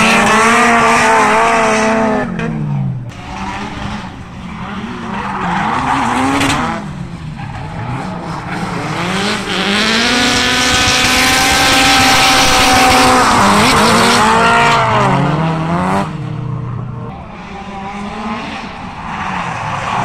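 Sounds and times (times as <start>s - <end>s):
car engines at high revs: 0.0s - 20.0s.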